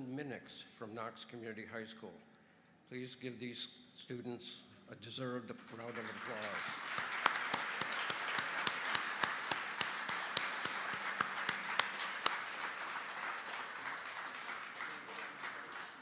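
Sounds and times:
audience applauding: 5.6 - 16.0.

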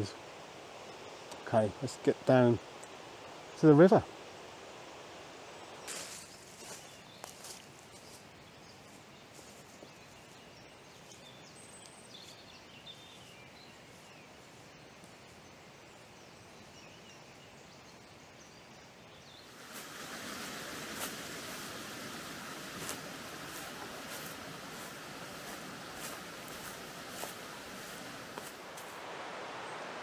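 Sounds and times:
faint outdoor hiss: 0.0 - 30.0
footsteps rustling on leaves: 5.8 - 15.3, 19.4 - 29.3
river water rushing: 19.4 - 30.0.

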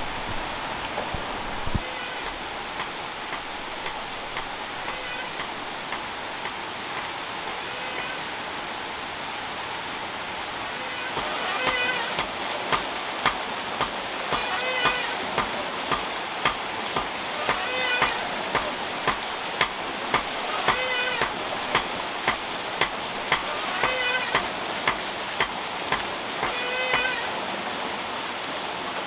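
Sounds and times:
rain on foliage and water: 0.0 - 29.0
regular knocking with squeaky ring: 2.0 - 8.2, 11.2 - 27.2.

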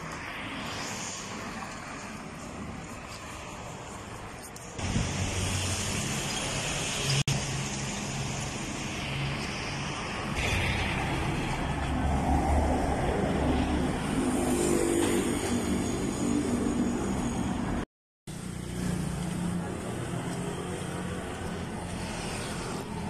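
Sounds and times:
car and motorbike engines: 0.0 - 23.0
road noise: 0.0 - 23.0.

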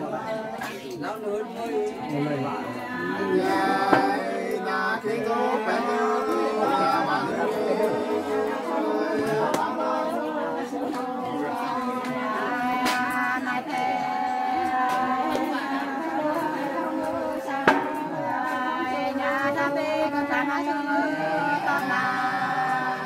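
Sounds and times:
women singing unaccompanied: 0.0 - 23.0
sharp knock: 17.7 - 17.9.

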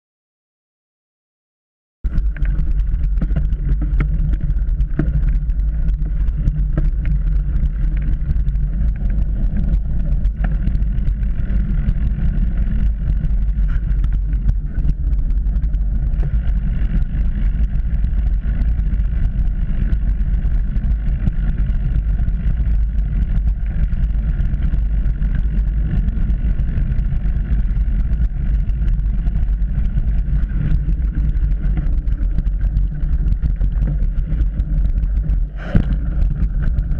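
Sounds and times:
bike tyres rumbling on dirt: 2.1 - 36.9.

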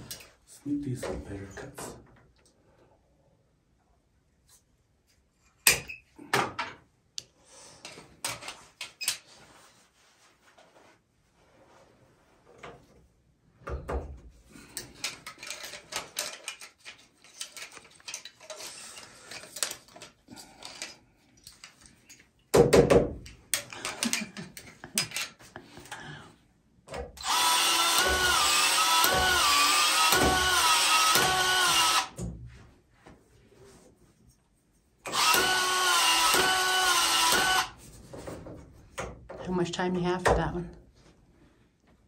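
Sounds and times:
expansion tool motor whining: 27.2 - 32.1, 35.1 - 37.8.

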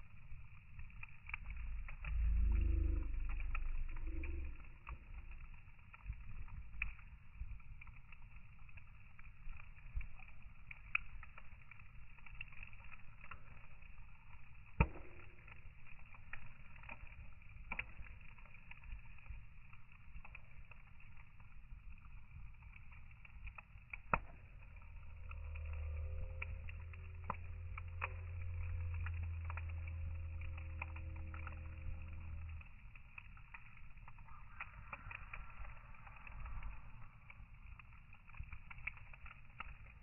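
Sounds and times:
low rumble: 0.0 - 12.0, 23.9 - 40.0
wood logs crackling in fire: 0.0 - 40.0.

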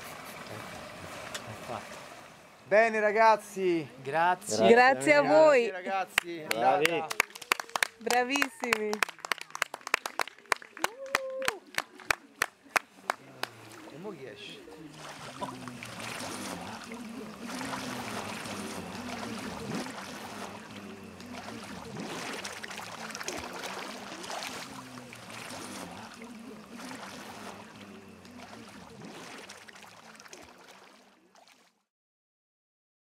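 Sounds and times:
water sloshing and splashing: 0.0 - 4.2, 11.6 - 31.8.

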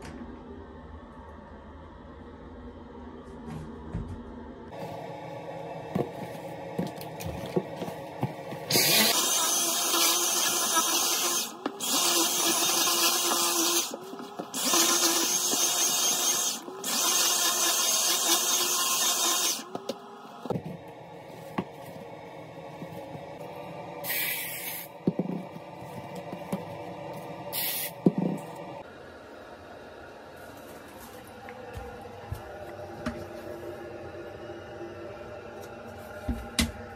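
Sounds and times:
short hissing bursts: 24.0 - 24.9, 27.6 - 27.9.

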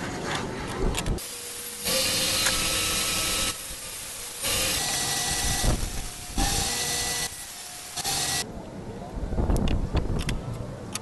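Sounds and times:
saw blade cutting wood: 1.2 - 8.4
table saw running: 1.2 - 8.4.

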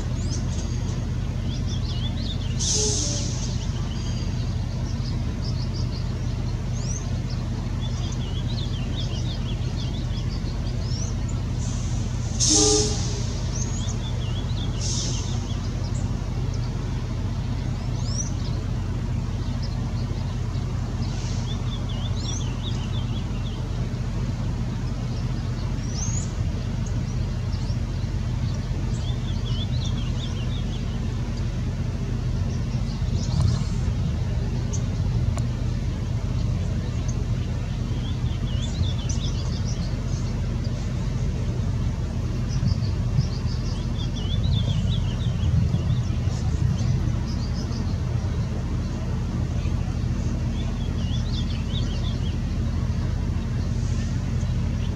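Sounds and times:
bird singing high rising notes: 0.0 - 16.8, 36.3 - 49.0, 49.6 - 54.9
steady low rumble: 0.0 - 54.9.

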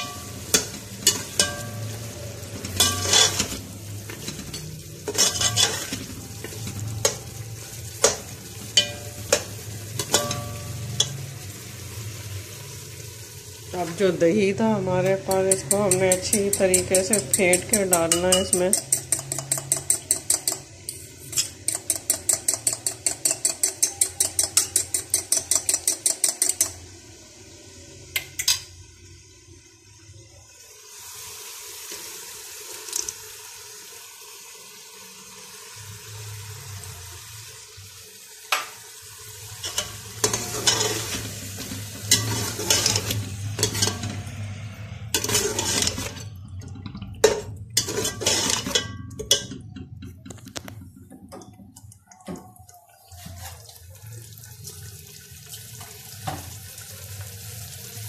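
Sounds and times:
frying sizzle: 0.0 - 58.0
spoon scraping pot: 2.6 - 7.3, 15.0 - 26.8, 39.6 - 51.2
spoon knocking on pot: 15.2 - 20.7, 21.6 - 26.8
spoon clinking in glass bowl: 15.3 - 26.8.

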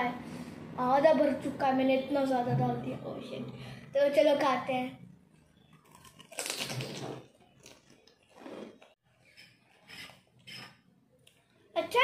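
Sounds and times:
crisp shell crunching: 5.8 - 8.1.

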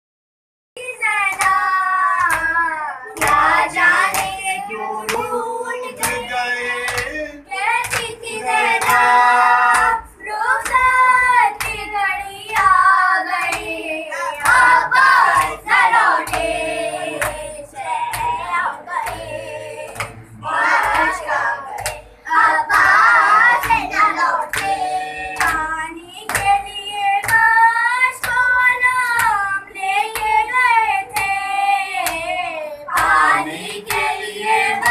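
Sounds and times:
mourners chanting together: 3.2 - 7.4, 8.0 - 10.1, 13.6 - 25.8, 33.0 - 34.9.

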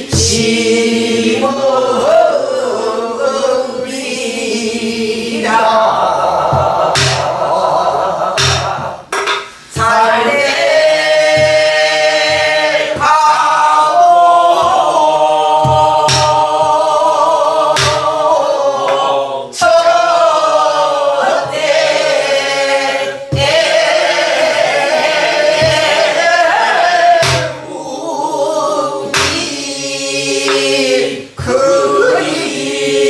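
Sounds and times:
barrel drum strokes: 0.0 - 1.5, 5.4 - 20.0, 21.2 - 27.8, 29.0 - 29.7, 30.4 - 32.2
group of voices singing: 0.0 - 33.0.

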